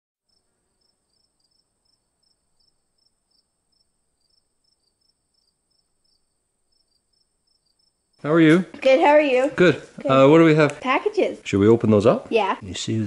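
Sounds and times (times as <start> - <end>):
crickets chirping: 0.3 - 8.5.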